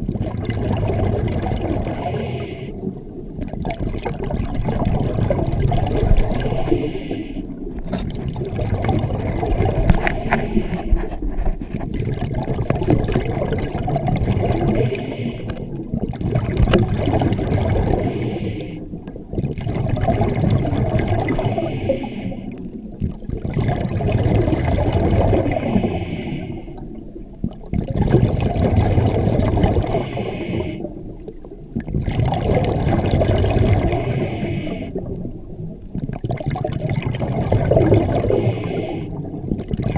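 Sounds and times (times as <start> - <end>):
exhaled bubbles rumbling: 0.0 - 39.9
regulator hiss on inhale: 2.0 - 2.9, 6.4 - 7.6, 10.0 - 11.2, 14.8 - 15.7, 18.0 - 18.9, 21.4 - 22.6, 25.4 - 26.8, 29.9 - 31.0, 33.9 - 35.0, 38.3 - 39.2.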